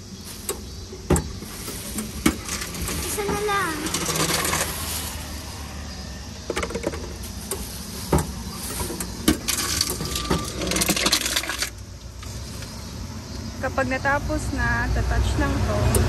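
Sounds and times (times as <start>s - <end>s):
sharp clicks and knocks: 0.4s - 4.9s, 6.4s - 12.8s.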